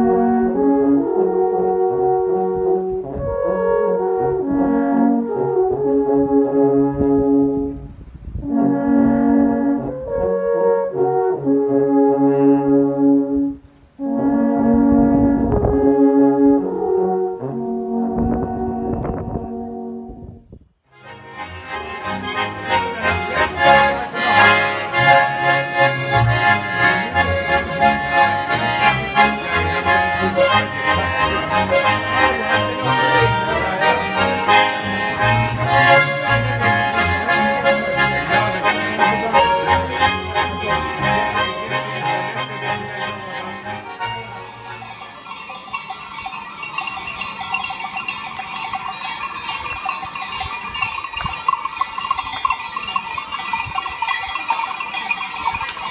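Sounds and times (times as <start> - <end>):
accordions and double bass playing: 0.0 - 20.3, 20.9 - 45.9
goat bells ringing: 43.2 - 55.9.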